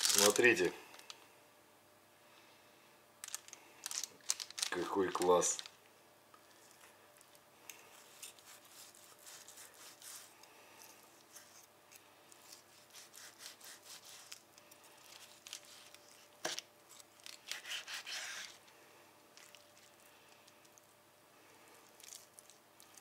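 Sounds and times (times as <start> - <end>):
knife sawing through steak: 7.9 - 10.4, 12.4 - 14.4, 17.5 - 18.6.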